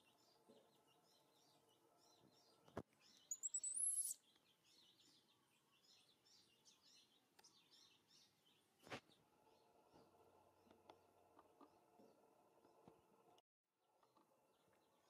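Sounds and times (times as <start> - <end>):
faint birds chirping: 0.0 - 15.0
baby monkey shrill call: 3.3 - 4.2.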